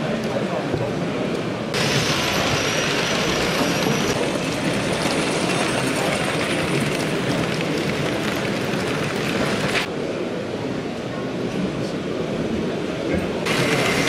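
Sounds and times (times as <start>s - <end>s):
model train rolling on track: 0.0s - 10.0s, 13.5s - 14.0s.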